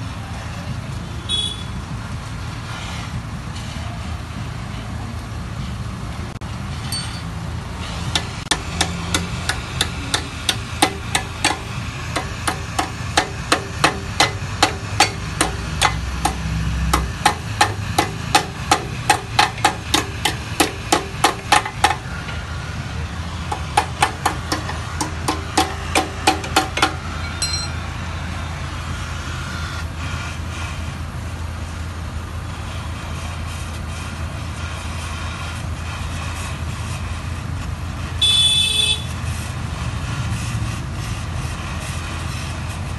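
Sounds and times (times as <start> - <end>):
hammer blows on metal: 8.0 - 22.4.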